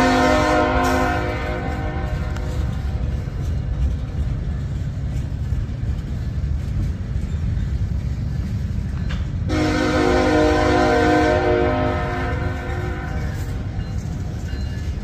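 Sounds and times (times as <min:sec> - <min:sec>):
train horn chord: 0:00.0 - 0:02.8, 0:09.5 - 0:13.8
train wheels rumbling on rail: 0:00.0 - 0:15.0.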